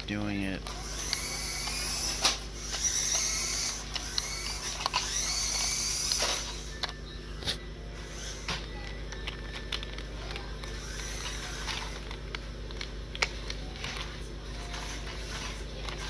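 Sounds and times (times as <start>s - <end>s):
toy truck electric motor hum: 0.0s - 16.0s
sharp clicks and ticks: 0.6s - 7.0s.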